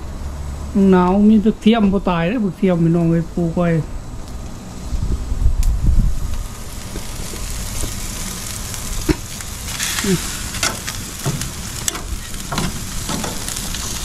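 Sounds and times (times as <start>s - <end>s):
meat sizzling on a grill: 2.1s - 14.0s
metal tongs scraping a grate: 9.7s - 13.6s.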